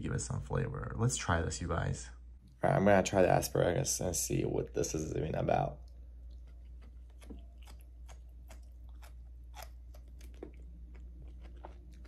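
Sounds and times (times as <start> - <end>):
low steady hum: 0.0 - 12.0
person chewing crunchy food: 5.8 - 12.0.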